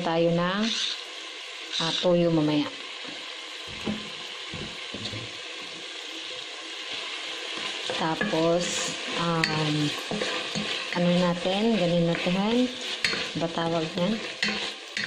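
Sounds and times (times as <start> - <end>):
chicken and onion sizzling in oil: 0.0 - 15.0
spatula scraping in pot: 0.6 - 1.1, 1.7 - 2.2, 6.9 - 15.0.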